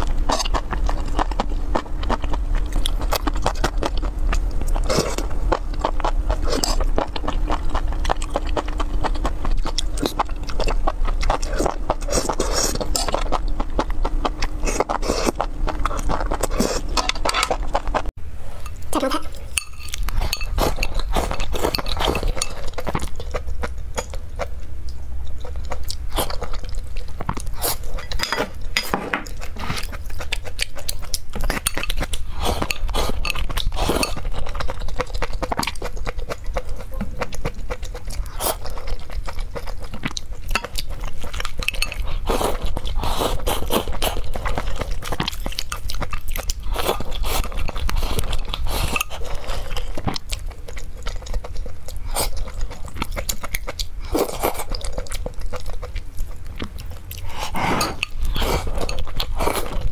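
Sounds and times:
chewing and slurping: 0.0s - 59.9s
chopsticks clinking on glass bowl: 19.5s - 22.6s.

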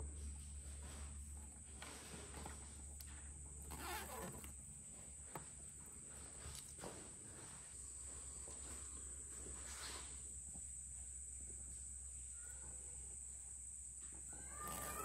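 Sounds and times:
soft rustles of handling: 0.1s - 12.0s.

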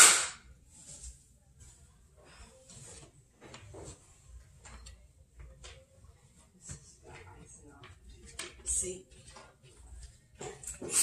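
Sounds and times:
loud sharp knock: 0.0s - 0.4s
faint household clicks and knocks: 2.8s - 11.0s.

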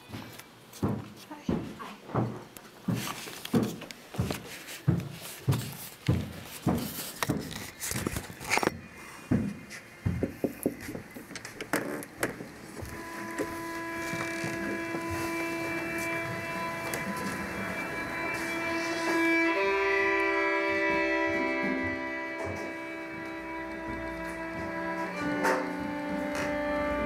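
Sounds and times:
footsteps: 0.0s - 27.0s
music with held bowed-string note: 12.8s - 27.0s.

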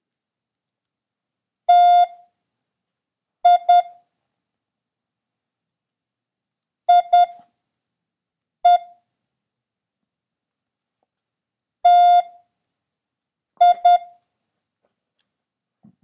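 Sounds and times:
morse code beeps: 3.5s - 3.9s, 6.9s - 7.4s, 13.6s - 14.2s.

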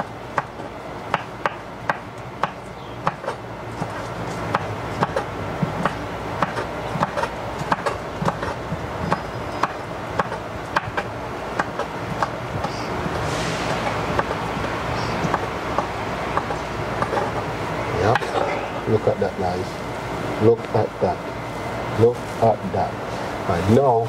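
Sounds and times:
knife chopping on cutting board: 1.1s - 13.2s, 14.1s - 14.7s.

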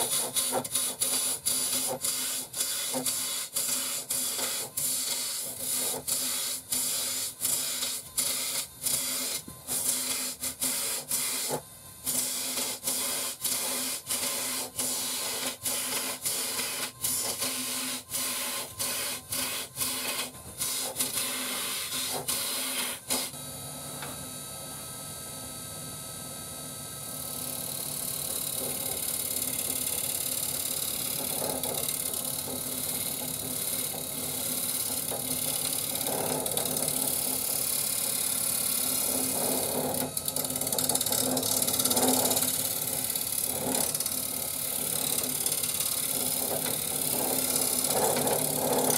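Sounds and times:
wood lathe humming: 27.3s - 48.9s
turning tool shaving wood: 30.7s - 48.9s.

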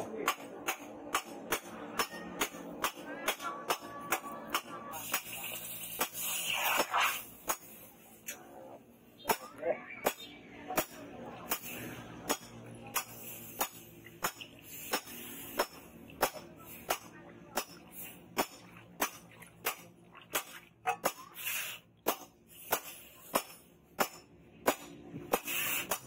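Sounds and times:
hot blade hissing in water: 5.0s - 7.4s, 25.3s - 26.0s.

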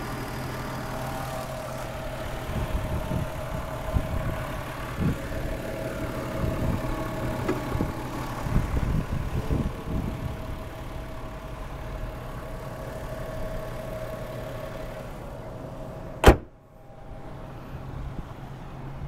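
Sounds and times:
car engine idling: 0.0s - 18.9s
bonnet slammed shut: 16.2s - 16.6s.

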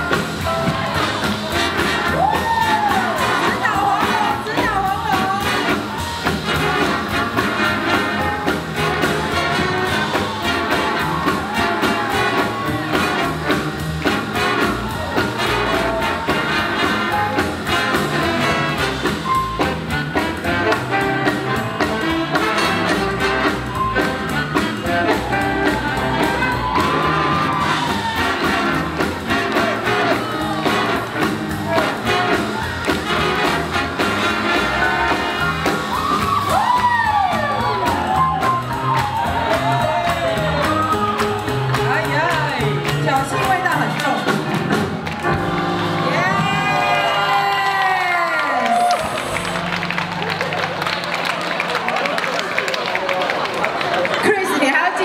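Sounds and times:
big band playing swing jazz: 0.0s - 55.0s.

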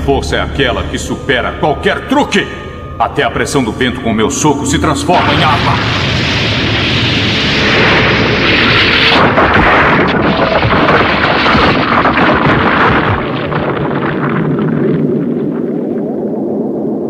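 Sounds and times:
explosion blast: 4.7s - 17.0s
crackling debris: 5.2s - 17.0s
rock crashing: 6.8s - 16.0s.

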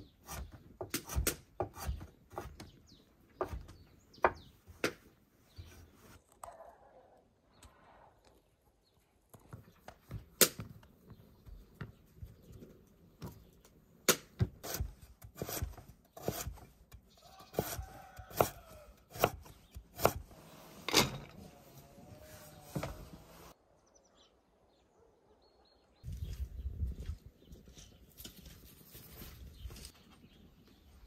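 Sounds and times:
knife chopping on wooden board: 0.2s - 2.6s, 14.1s - 16.6s, 17.5s - 20.2s.

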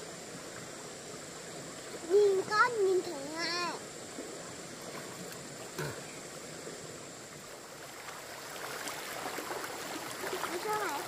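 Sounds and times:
stream water running: 0.0s - 11.0s.

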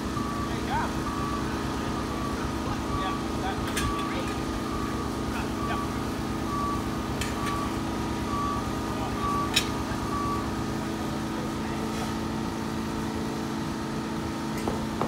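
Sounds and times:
reversing alarm beeping: 0.0s - 10.9s
engine hum: 0.0s - 15.0s.

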